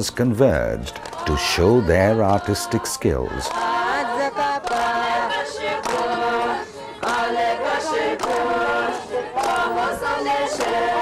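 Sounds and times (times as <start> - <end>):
women chanting in unison: 3.4 - 11.0.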